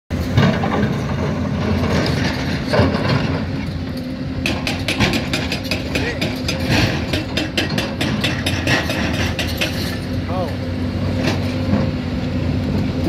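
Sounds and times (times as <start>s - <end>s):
heavy diesel engines running: 0.1s - 13.0s
fast clicks and knocks: 4.4s - 9.9s.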